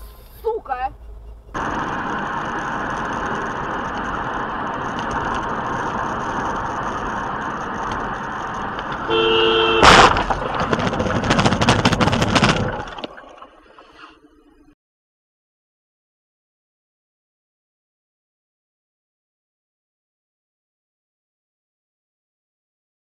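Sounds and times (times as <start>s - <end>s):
car road and engine noise: 0.0s - 14.7s
two-tone car horn honking: 9.0s - 10.0s
loud crash: 9.7s - 13.0s
rapid clattering and knocking: 9.8s - 13.2s.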